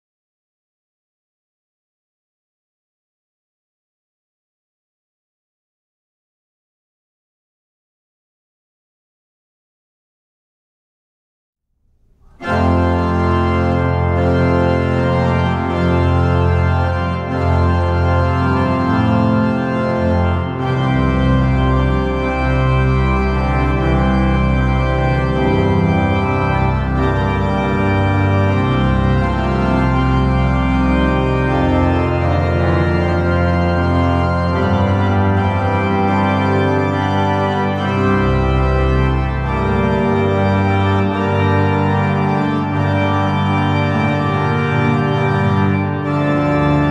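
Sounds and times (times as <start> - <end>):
pipe organ playing: 12.2 - 46.9.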